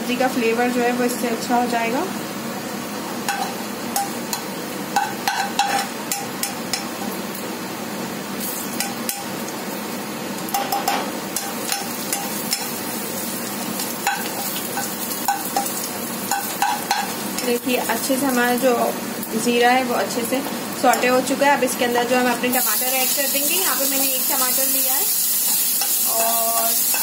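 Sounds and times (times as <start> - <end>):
seeds sizzling in hot oil: 8.3 - 27.0.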